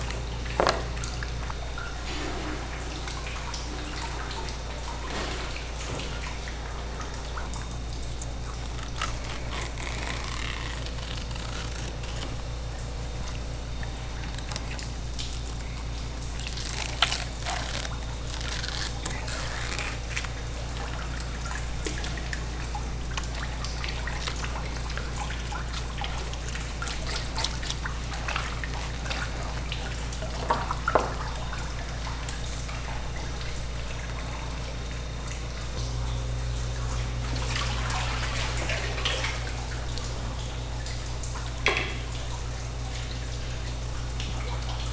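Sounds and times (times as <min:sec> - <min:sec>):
steady low hum: 0:00.0 - 0:44.9
tap water running: 0:00.0 - 0:44.9.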